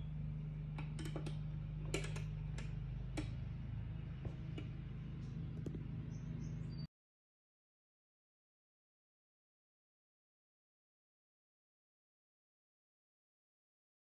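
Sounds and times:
steady low hum: 0:00.0 - 0:06.9
light irregular clicks and taps: 0:00.8 - 0:03.4.

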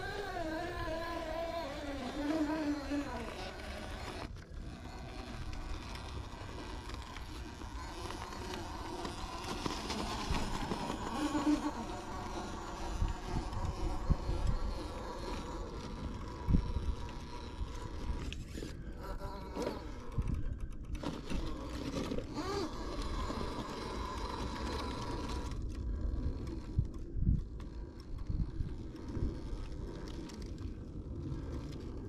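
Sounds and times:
electric motor whining: 0:00.0 - 0:26.9
wind on microphone: 0:06.9 - 0:21.6.

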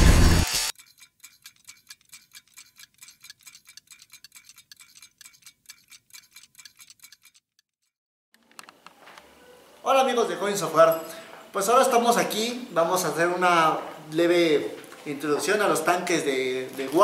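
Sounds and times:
mechanical ticking: 0:00.7 - 0:07.9.

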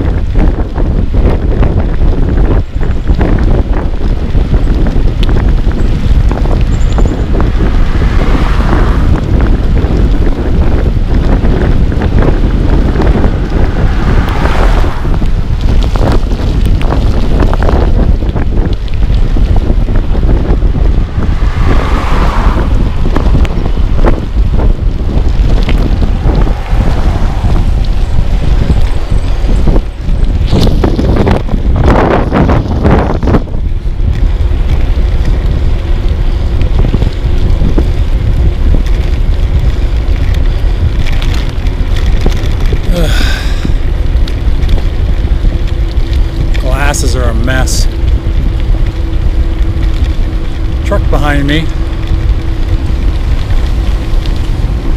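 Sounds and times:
wind buffeting microphone: 0:00.0 - 0:54.9
rain-like hiss: 0:19.3 - 0:31.4, 0:42.5 - 0:54.9.

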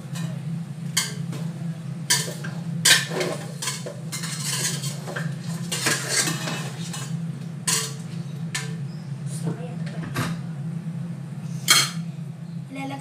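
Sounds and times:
low hum: 0:00.0 - 0:13.0
metal ladle scraping and clanking: 0:02.1 - 0:07.1, 0:07.7 - 0:08.0.

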